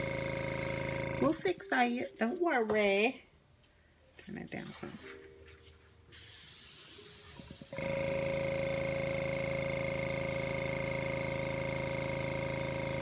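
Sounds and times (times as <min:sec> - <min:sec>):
compressor hum: 0:00.0 - 0:01.6, 0:07.2 - 0:13.0
airbrush hissing: 0:06.1 - 0:13.0.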